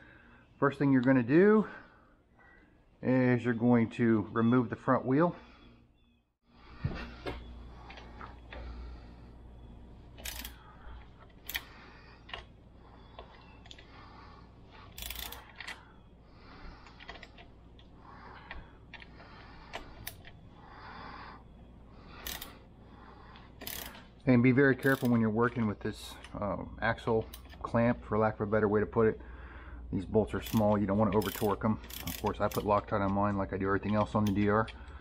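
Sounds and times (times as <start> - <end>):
wrench clicks and metal taps: 10.2 - 11.7, 14.9 - 15.8, 22.2 - 22.5, 23.3 - 24.0, 24.8 - 25.2, 30.4 - 35.0.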